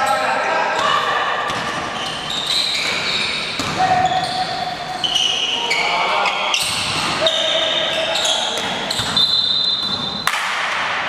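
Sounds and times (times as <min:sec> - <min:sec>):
sneakers squeaking on court: 0:00.0 - 0:10.4
players' voices: 0:00.0 - 0:11.0
basketball bouncing on floor: 0:03.6 - 0:04.2.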